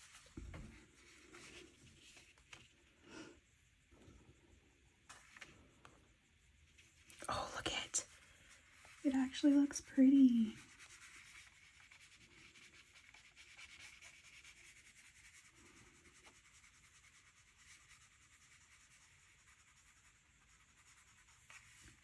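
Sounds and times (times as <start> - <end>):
faint rubbing and handling: 0.0 - 22.0.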